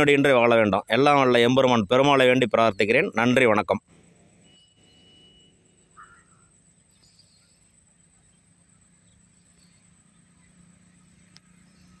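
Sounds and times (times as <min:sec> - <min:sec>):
insect drone: 0:00.0 - 0:12.0.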